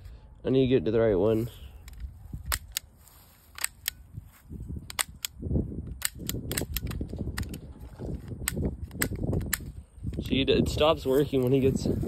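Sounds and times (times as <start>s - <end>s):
toy cap gun snaps: 4.9s - 7.6s.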